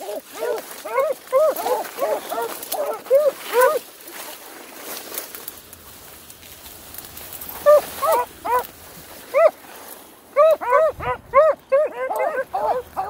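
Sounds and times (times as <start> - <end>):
small dogs yelping: 0.0 - 3.8, 7.5 - 8.7, 9.3 - 9.6, 10.3 - 13.0.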